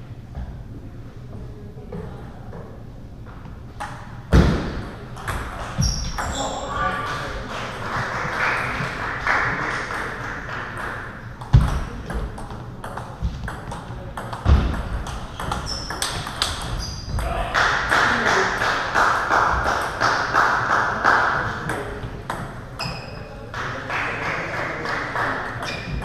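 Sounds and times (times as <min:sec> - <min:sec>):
table tennis balls clicking: 0:09.9 - 0:17.0.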